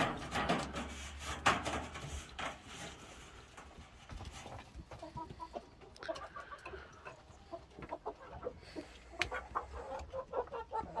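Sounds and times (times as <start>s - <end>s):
roosters calling: 4.3s - 11.0s.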